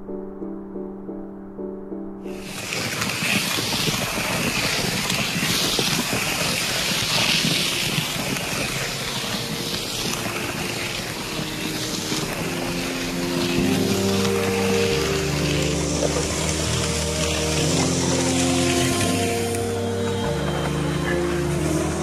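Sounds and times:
stones scraping in mixer pan: 0:02.4 - 0:19.6.

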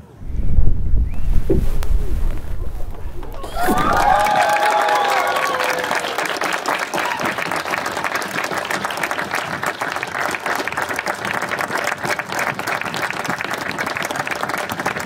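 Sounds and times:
crowd applauding: 0:03.3 - 0:15.0.

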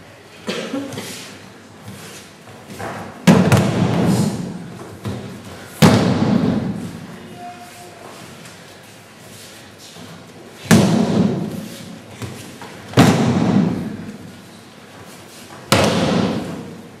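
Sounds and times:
bodies slapping onto mats: 0:10.6 - 0:13.9, 0:15.6 - 0:16.7.

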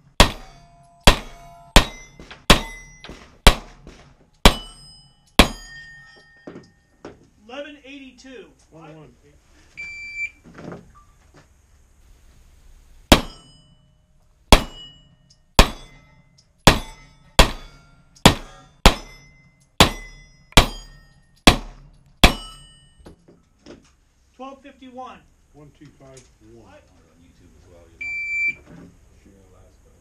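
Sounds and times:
steel targets ringing: 0:00.0 - 0:07.0, 0:13.1 - 0:23.3
pistol shots: 0:00.1 - 0:04.8, 0:05.4 - 0:05.8, 0:13.1 - 0:13.4, 0:14.5 - 0:15.0, 0:15.6 - 0:16.0, 0:16.6 - 0:19.2, 0:19.8 - 0:22.6.

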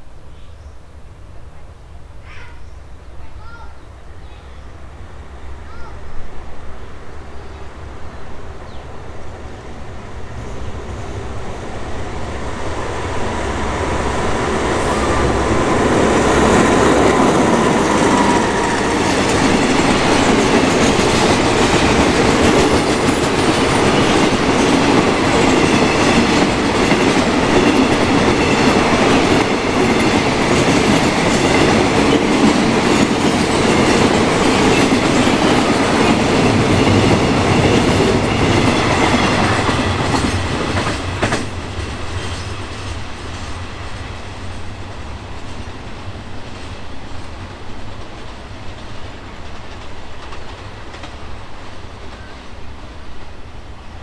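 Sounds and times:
freight train rumbling past: 0:00.0 - 0:54.0
diesel locomotive: 0:03.4 - 0:54.0
wheels clacking over rail joints: 0:14.4 - 0:45.8, 0:46.4 - 0:52.3.

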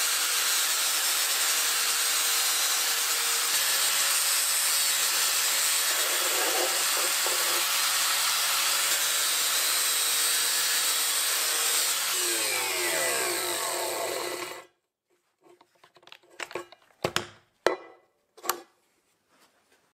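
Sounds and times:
angle grinder grinding steel: 0:00.2 - 0:14.7
grinder knocking on steel: 0:05.8 - 0:07.8
motor winding down whine: 0:12.1 - 0:14.6.

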